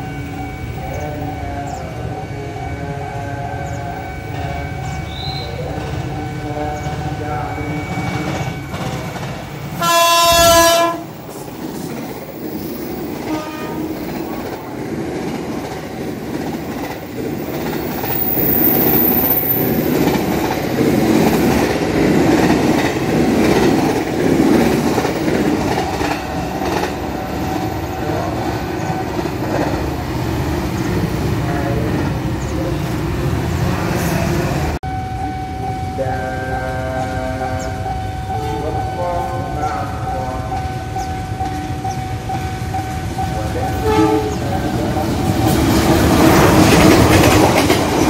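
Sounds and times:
train wheels rumbling on rails: 0.0s - 48.0s
train horn blast: 9.7s - 11.2s, 13.2s - 14.1s, 43.8s - 44.6s.

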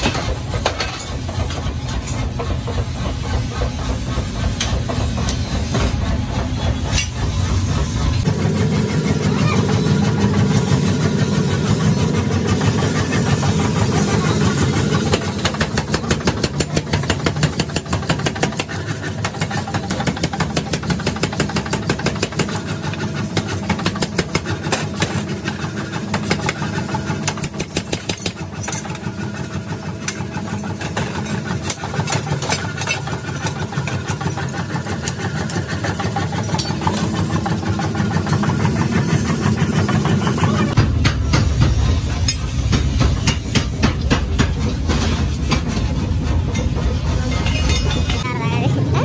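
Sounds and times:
low machine drone: 0.0s - 16.5s, 35.9s - 49.0s
power hammer pounding metal: 0.0s - 49.0s.

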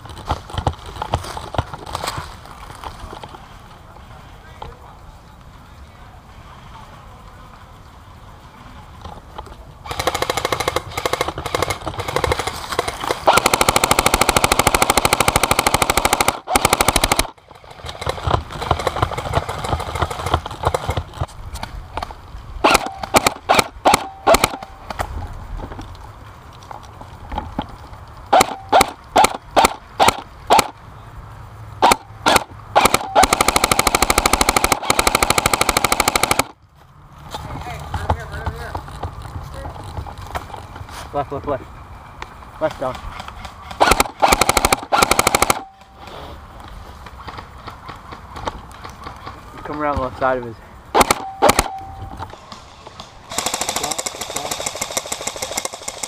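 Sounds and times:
airsoft rifle full-auto bursts: 9.9s - 21.0s, 22.6s - 24.7s, 28.3s - 30.7s, 31.8s - 36.6s, 43.7s - 45.9s, 50.9s - 51.9s, 53.3s - 56.0s
airsoft rifle single shots: 22.6s - 25.0s, 28.3s - 30.7s, 31.8s - 36.5s, 50.9s - 51.9s.

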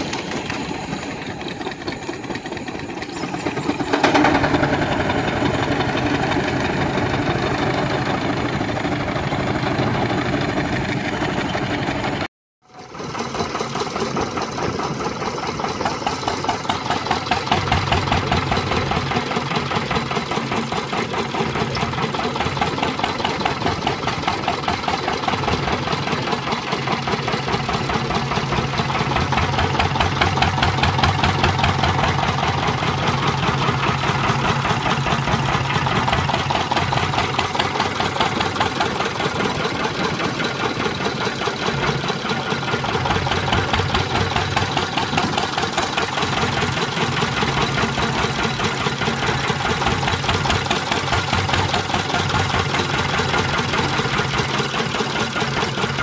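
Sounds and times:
stationary gas engine beating: 0.0s - 56.0s
steam traction engine running: 0.0s - 56.0s.

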